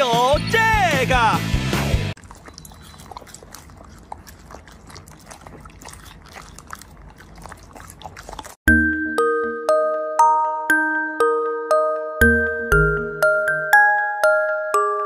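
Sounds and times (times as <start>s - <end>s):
puppy chewing: 2.2s - 8.7s
glockenspiel notes: 8.7s - 15.0s.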